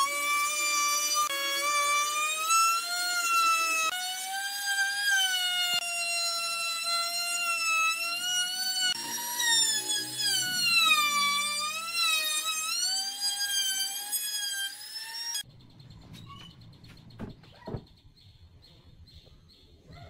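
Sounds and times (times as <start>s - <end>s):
trim router whining: 0.0s - 15.4s.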